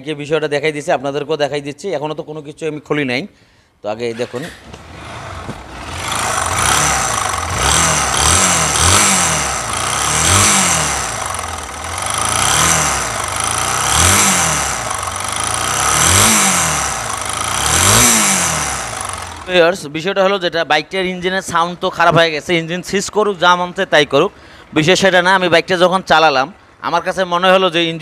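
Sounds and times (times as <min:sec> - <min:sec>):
motorcycle engine revving: 0:04.1 - 0:19.8.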